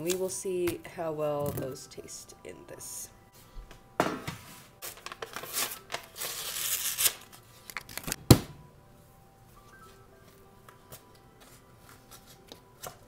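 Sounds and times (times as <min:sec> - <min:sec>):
paper label tearing and peeling: 0:05.5 - 0:08.2.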